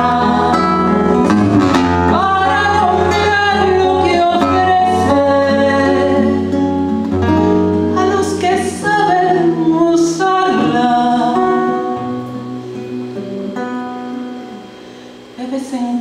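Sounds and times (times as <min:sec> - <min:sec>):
woman singing a ballad: 0:00.0 - 0:01.2, 0:02.0 - 0:06.6, 0:07.9 - 0:13.1, 0:15.4 - 0:16.0
plucked acoustic guitar: 0:00.0 - 0:15.9.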